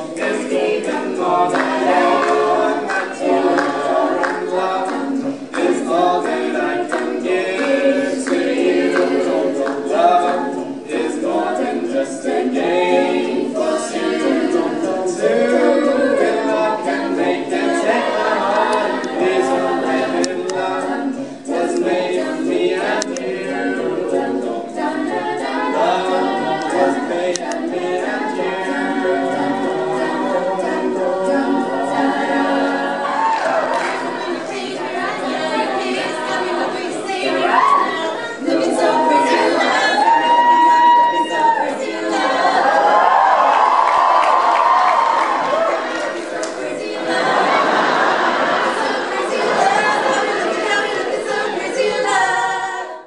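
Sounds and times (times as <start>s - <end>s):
group singing a cappella: 0.0s - 53.0s.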